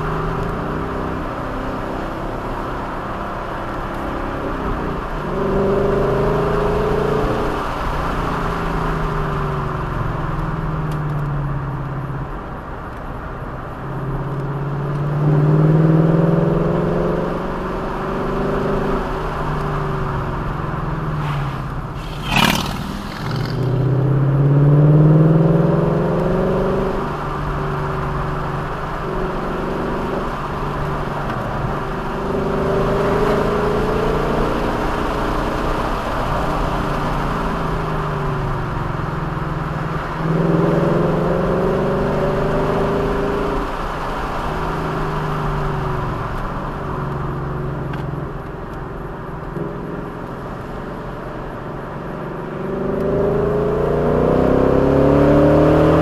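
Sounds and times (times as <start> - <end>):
road and wind noise: 0.0 - 56.0
vehicle engine accelerating: 13.7 - 56.0.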